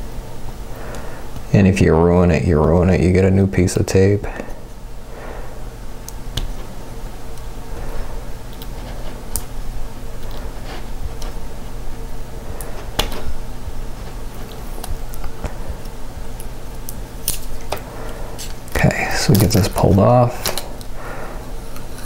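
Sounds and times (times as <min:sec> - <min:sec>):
steady low hum: 0:00.0 - 0:22.0
tape peeling rustle: 0:08.4 - 0:11.8, 0:12.5 - 0:20.9.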